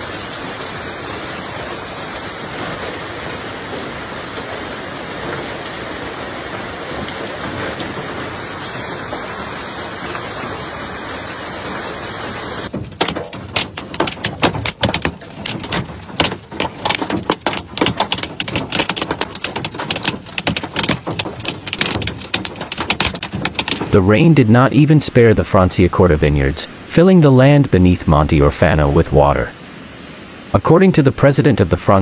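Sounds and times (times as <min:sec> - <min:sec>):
hail and rain falling: 0:00.0 - 0:24.4
hailstones hitting a vehicle: 0:12.6 - 0:24.0.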